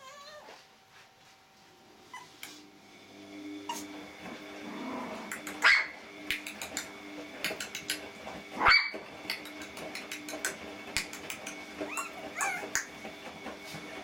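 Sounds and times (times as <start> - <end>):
puppies yapping: 5.2 - 6.9, 7.5 - 13.0
claws clicking on tile floor: 6.3 - 8.1, 9.3 - 11.6.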